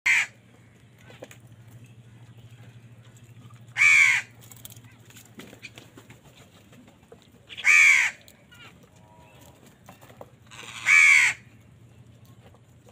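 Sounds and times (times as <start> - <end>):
crows cawing: 0.1 - 0.4, 3.7 - 4.4, 7.5 - 8.7, 10.5 - 11.5.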